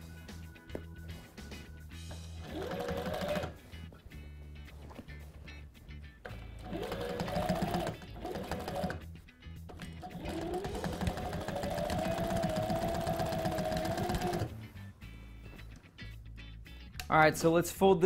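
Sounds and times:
industrial sewing machine stitching: 2.4s - 3.6s, 6.6s - 9.0s, 9.8s - 14.5s.

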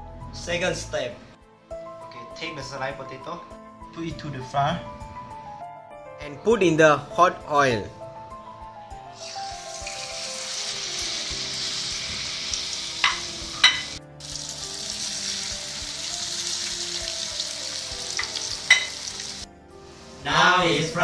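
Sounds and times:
potatoes sizzling in hot oil: 9.2s - 19.5s.

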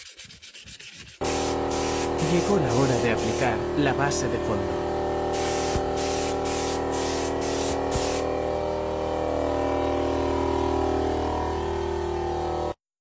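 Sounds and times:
spray gun hissing bursts: 1.2s - 4.0s, 5.3s - 8.4s
steady hum: 1.2s - 12.8s.

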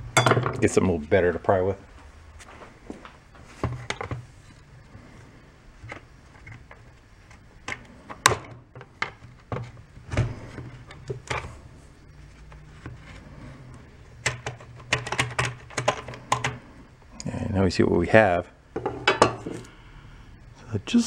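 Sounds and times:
faint low steady hum: 0.0s - 21.0s.

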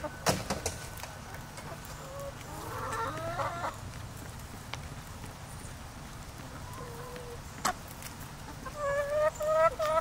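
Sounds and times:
hens clucking: 0.0s - 4.0s, 6.4s - 10.0s.

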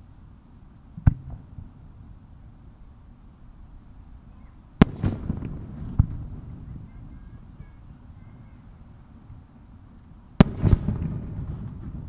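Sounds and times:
firework shells bursting: 4.8s - 7.0s, 9.9s - 12.0s.

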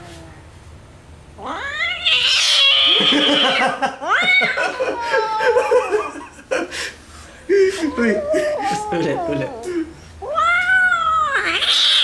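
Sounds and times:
kitten yowling: 1.4s - 5.7s, 7.9s - 12.0s.

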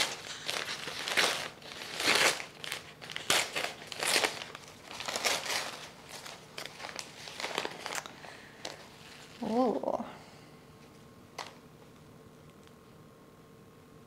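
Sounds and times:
paper wrapping crinkling: 0.0s - 9.8s.

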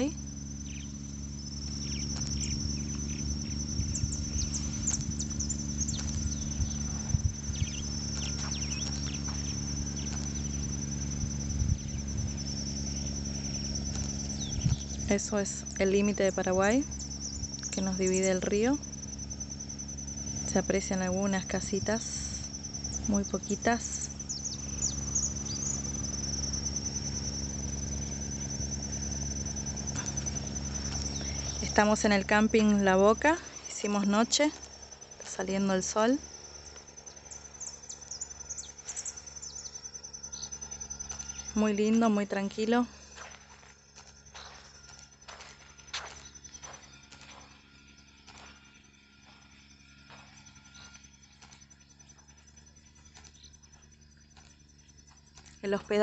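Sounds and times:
crickets trilling: 0.0s - 56.0s
low hum and rumble: 0.0s - 56.0s.

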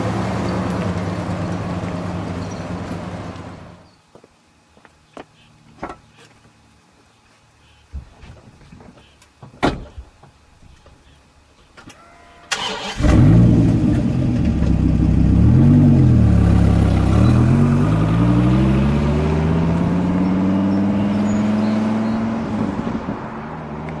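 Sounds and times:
car engine revving and accelerating: 12.9s - 24.0s.

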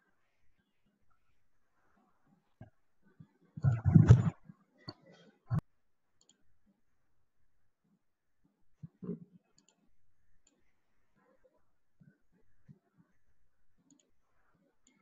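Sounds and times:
computer mouse clicks: 6.2s - 6.4s, 9.5s - 10.7s.

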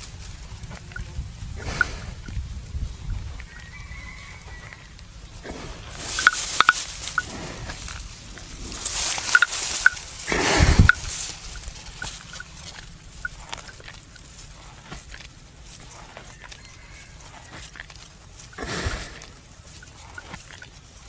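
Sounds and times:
buffalo chewing cud: 0.0s - 21.0s
faint chicken clucks: 3.0s - 5.1s, 15.8s - 18.1s.

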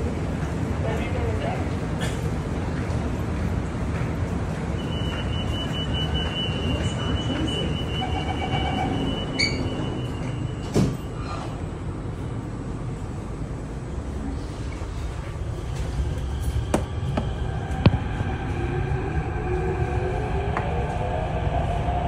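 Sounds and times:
train low steady hum: 0.0s - 22.0s
train doors shutting thud: 9.4s - 11.1s.

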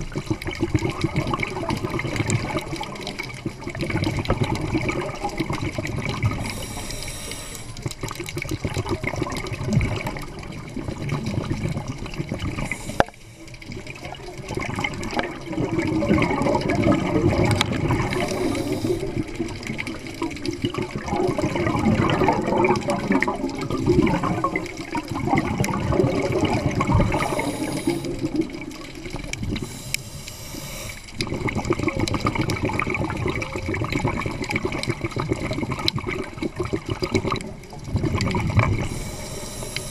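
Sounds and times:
exhaled bubbles rushing: 0.0s - 30.0s, 31.0s - 39.9s
regulator inhalation hiss: 6.4s - 7.8s, 12.6s - 13.6s, 18.1s - 19.3s, 27.1s - 28.3s, 29.6s - 31.2s, 38.8s - 39.9s.

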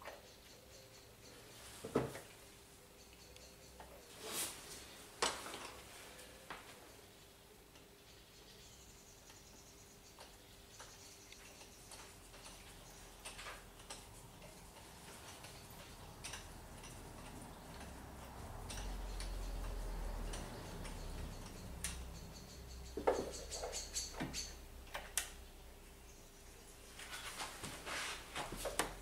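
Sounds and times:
sharp clicks and knocks: 10.1s - 25.4s
hand tools clicking on metal: 10.2s - 25.3s.

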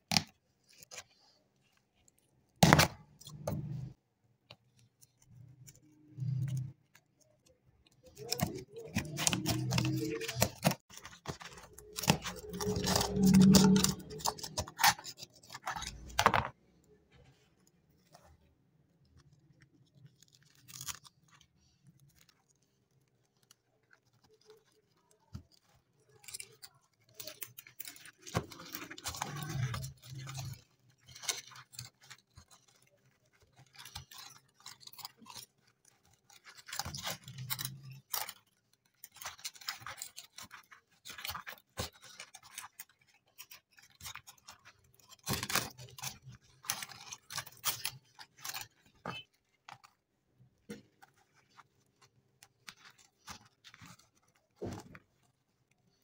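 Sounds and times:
dry dirt scraping and crunching: 8.0s - 16.4s.

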